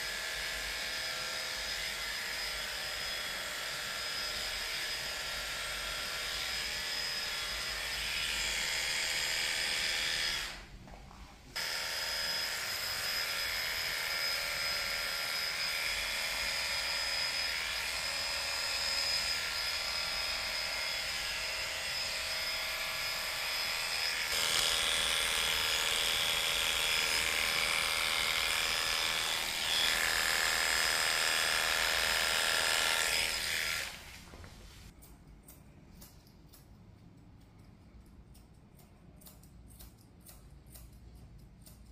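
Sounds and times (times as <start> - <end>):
electric hair clippers buzzing: 0.0 - 10.7, 11.6 - 34.2.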